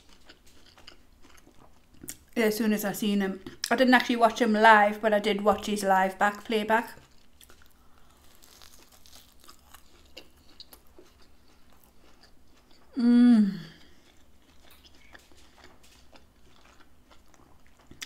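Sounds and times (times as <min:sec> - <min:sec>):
chewing crunchy food: 0:00.0 - 0:02.4, 0:06.8 - 0:13.0, 0:13.6 - 0:18.0
person short vocal sound: 0:13.0 - 0:13.8.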